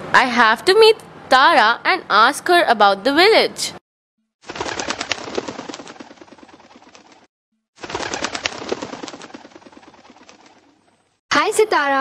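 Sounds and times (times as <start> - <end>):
bird wings flapping: 4.4 - 11.2.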